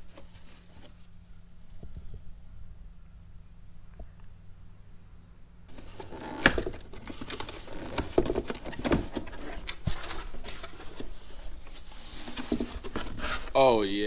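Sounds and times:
cardboard box and packing rustling: 0.0s - 1.2s, 5.7s - 13.7s.

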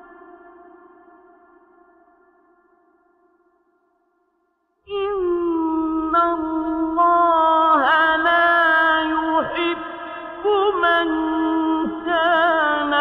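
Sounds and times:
man chanting recitation: 5.5s - 13.0s.

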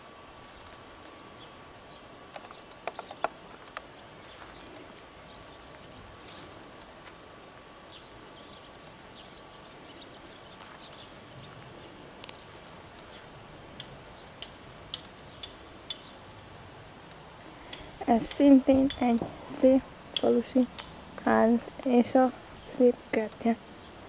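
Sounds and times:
faint village street background: 0.0s - 24.0s
sharp ticks: 13.8s - 16.1s, 17.7s - 19.2s.

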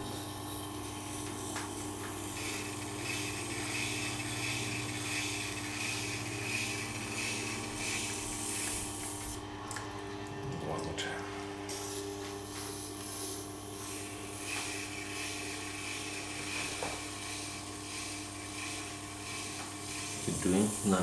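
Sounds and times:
sharpening machine humming: 0.0s - 9.5s, 11.6s - 21.0s
knife grinding on wheel: 0.4s - 9.0s, 13.7s - 21.0s.

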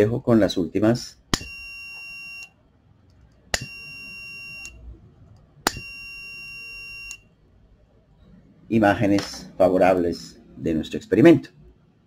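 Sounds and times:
high-pitched buzzer beeps: 1.3s - 2.6s, 3.5s - 4.8s, 5.6s - 7.3s.

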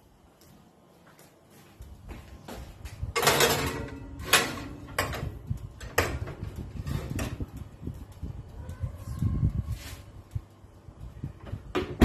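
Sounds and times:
metal tray clanking: 3.2s - 5.3s
metal tray scraping on rack: 3.2s - 5.3s.

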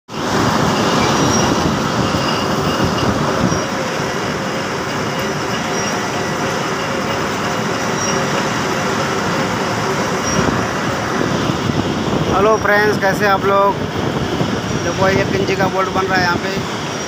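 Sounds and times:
metal lathe cutting steel: 0.1s - 13.8s.

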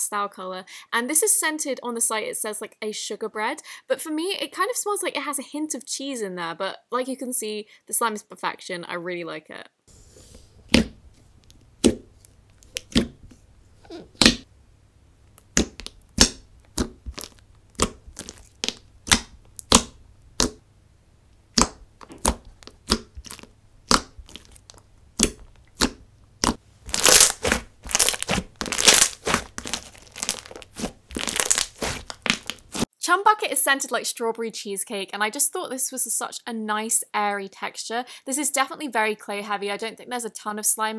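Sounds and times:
slime popping and squishing: 10.7s - 13.2s, 15.3s - 20.6s, 21.5s - 32.9s.

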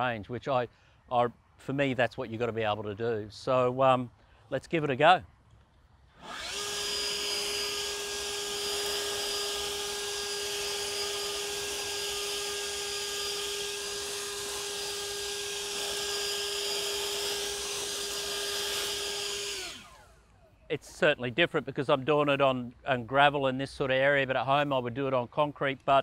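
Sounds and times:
leaf blower running: 6.1s - 20.6s.

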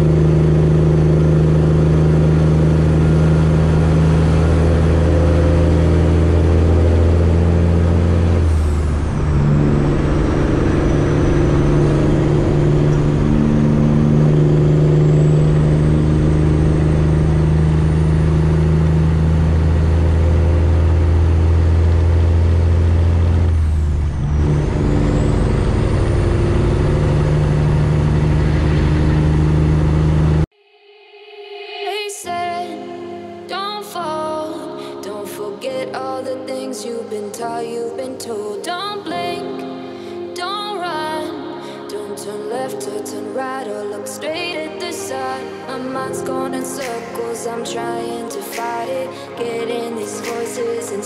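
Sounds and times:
diesel truck engine under load: 0.0s - 30.5s.

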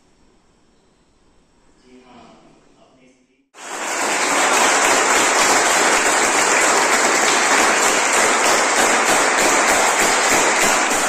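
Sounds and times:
children clapping: 3.6s - 11.0s.

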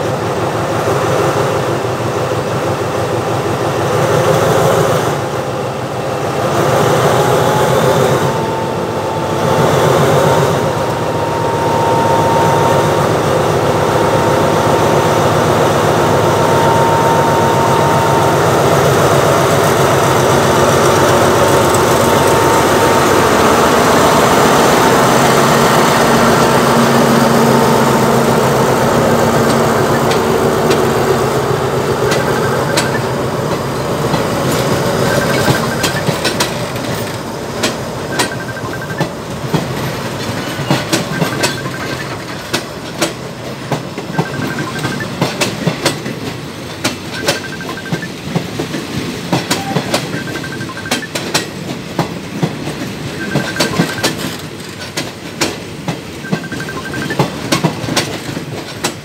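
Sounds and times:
diesel locomotive engine running: 0.0s - 59.0s.

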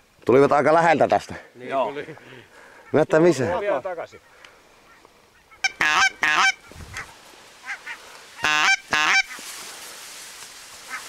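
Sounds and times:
goose honking: 4.0s - 9.5s, 10.8s - 11.0s.

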